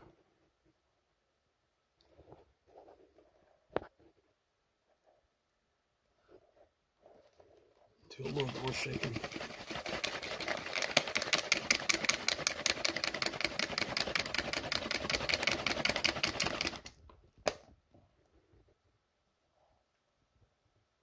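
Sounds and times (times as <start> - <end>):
liquid sloshing in shaken bottle: 8.1 - 16.9.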